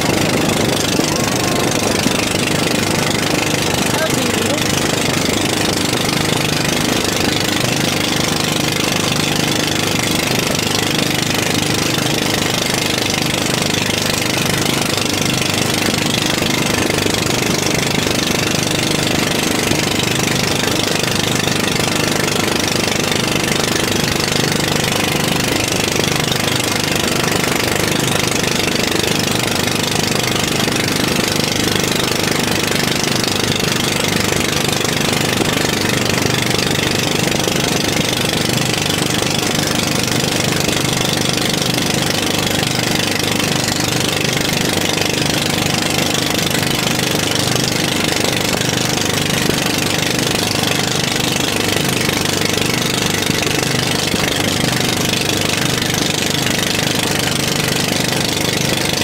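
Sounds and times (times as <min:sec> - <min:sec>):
boat engine running: 0:00.0 - 0:59.0.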